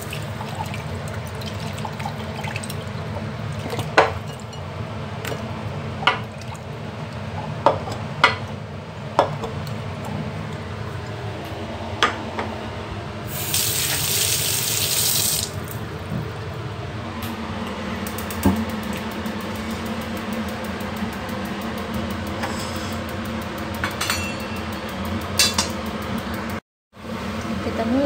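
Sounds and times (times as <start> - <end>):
kitchen tap running: 0.0 - 4.6, 13.3 - 16.7
steady low hum: 15.6 - 28.0.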